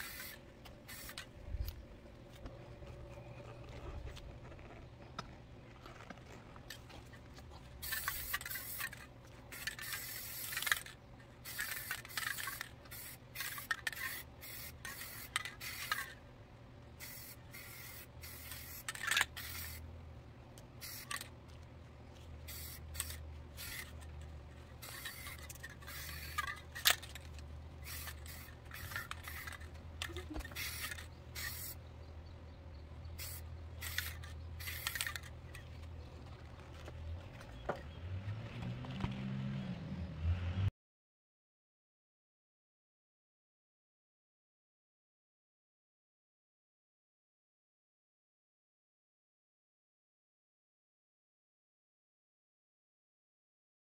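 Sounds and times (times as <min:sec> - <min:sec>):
spray paint can hissing: 0:00.0 - 0:01.8, 0:07.8 - 0:16.2, 0:17.0 - 0:19.8, 0:20.8 - 0:21.3, 0:22.4 - 0:24.1, 0:24.8 - 0:31.8, 0:33.2 - 0:35.7.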